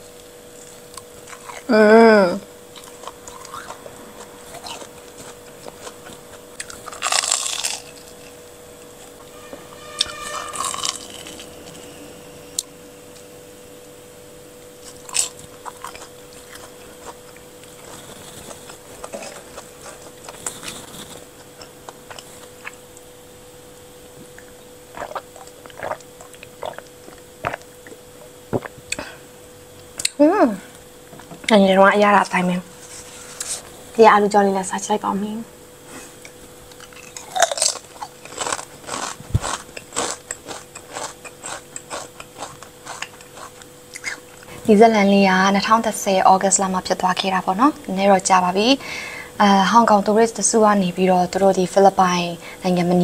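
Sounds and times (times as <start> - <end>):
crunchy chewing: 0.1 - 1.7, 2.5 - 13.3, 14.7 - 23.1, 24.2 - 29.0, 35.9 - 44.6
person humming: 1.7 - 2.5.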